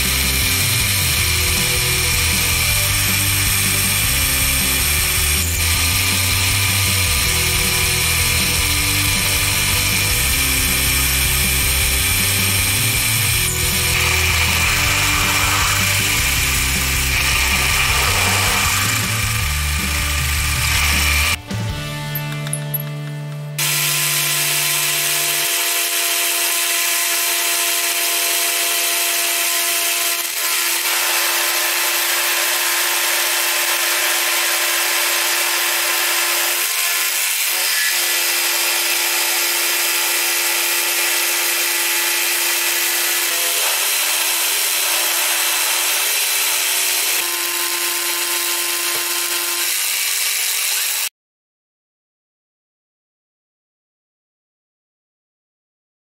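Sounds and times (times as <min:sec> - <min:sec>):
milling machine spindle whine: 0:11.2 - 0:21.4
hiss of metal cutting: 0:13.8 - 0:19.4.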